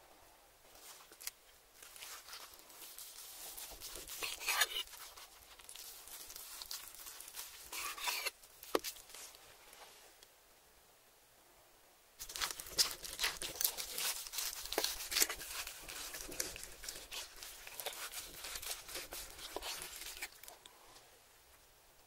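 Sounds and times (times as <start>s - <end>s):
crackly tearing of cooked meat: 1.1s - 9.2s, 12.2s - 20.6s.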